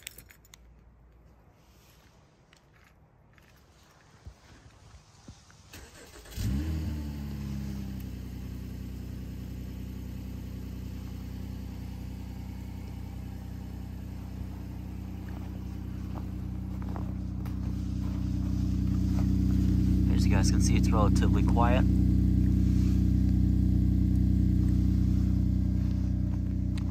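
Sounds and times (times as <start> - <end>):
car engine starting and idling: 5.6 - 26.9.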